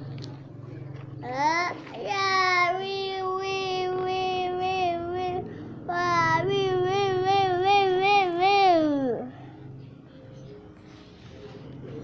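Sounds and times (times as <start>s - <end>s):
child singing long notes: 1.3s - 9.3s.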